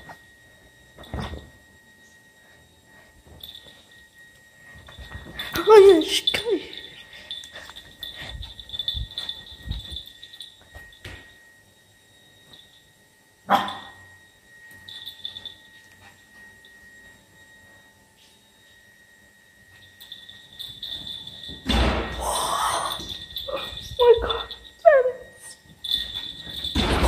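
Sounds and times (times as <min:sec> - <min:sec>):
small dog barking: 0:13.5 - 0:13.9.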